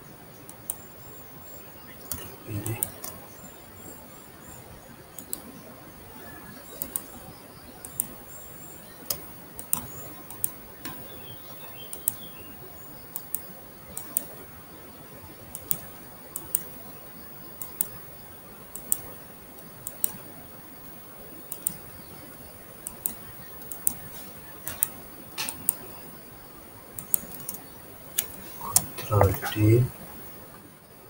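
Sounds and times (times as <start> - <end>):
faint steady hiss: 0.0 - 31.0
computer mouse clicks: 5.2 - 5.4, 7.8 - 8.1, 9.1 - 11.0, 11.9 - 12.2, 13.2 - 14.4, 15.5 - 16.7, 17.6 - 18.0, 18.7 - 20.2, 21.5 - 21.8, 22.8 - 25.9, 27.0 - 27.6.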